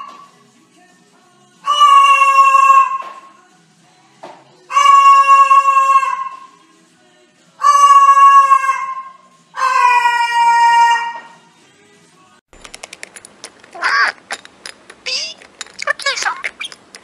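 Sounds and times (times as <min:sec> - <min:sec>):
cockatoo calling: 0:01.6 - 0:03.3, 0:04.7 - 0:06.6, 0:07.6 - 0:11.4, 0:13.6 - 0:14.4, 0:15.0 - 0:17.0.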